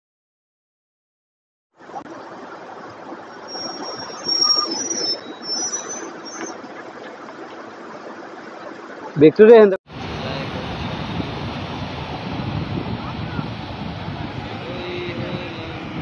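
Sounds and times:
brief high squeals: 3.5 - 6.6
city street traffic: 9.1 - 16.0.

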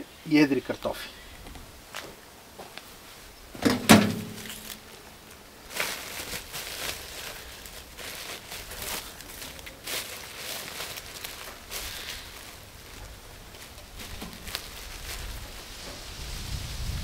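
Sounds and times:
plastic crate clattering on metal: 3.6 - 4.8
plastic sack rustling and scraping: 3.6 - 17.0.

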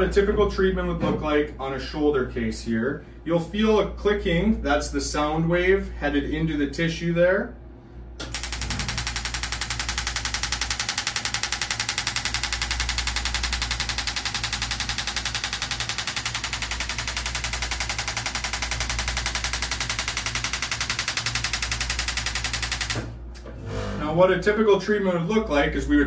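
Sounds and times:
rapid even clicking: 8.2 - 23.1.

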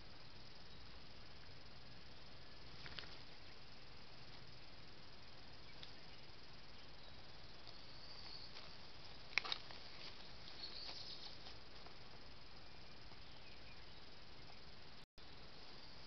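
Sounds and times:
microphone hiss: 0.0 - 16.0
faint high chirps: 5.6 - 9.4, 10.0 - 11.4
leaf litter crackling: 8.5 - 11.4.

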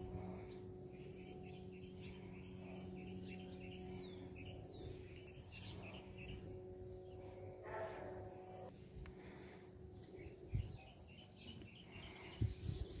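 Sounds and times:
high downward bird chirps: 0.0 - 7.9
birds chirping: 0.0 - 13.0
faint steady hum: 0.0 - 13.0.

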